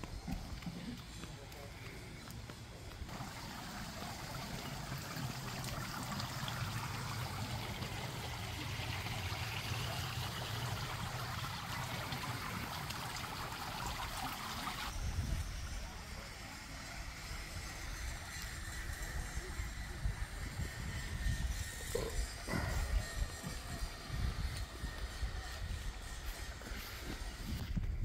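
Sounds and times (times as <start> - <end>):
pool water trickling: 0.3 - 22.5.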